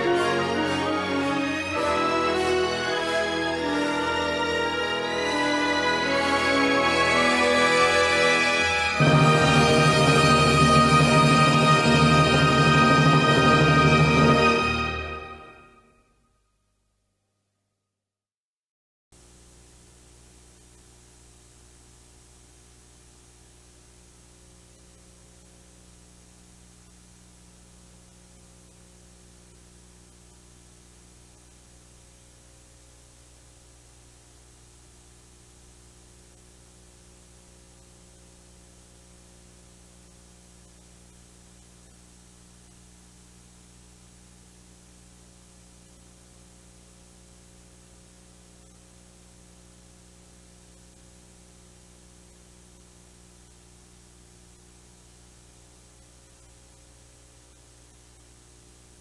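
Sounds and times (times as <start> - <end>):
tape hiss: 0.0 - 17.6, 19.2 - 59.0
low mains hum: 0.0 - 17.9, 19.2 - 59.0.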